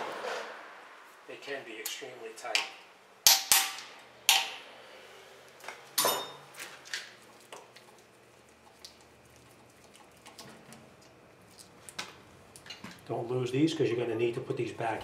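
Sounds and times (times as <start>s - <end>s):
hammer striking steel tool: 3.3s - 4.6s.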